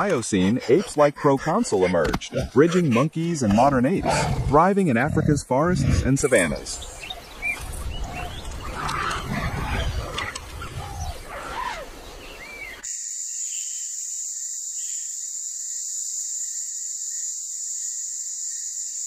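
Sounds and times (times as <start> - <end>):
bird chirps: 6.6 - 14.0
high-pitched insect drone: 12.8 - 19.0.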